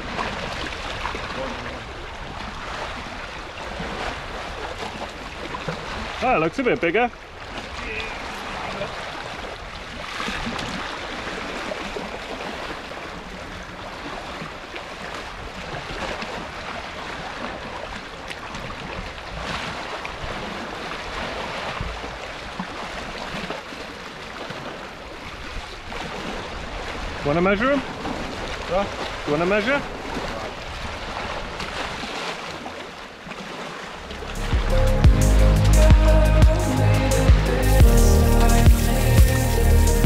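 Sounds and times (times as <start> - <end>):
sea water lapping against rocks: 0.0 - 34.6.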